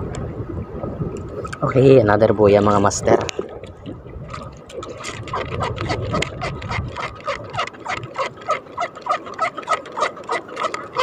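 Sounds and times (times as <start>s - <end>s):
fishing line squeaking: 3.2s - 11.0s.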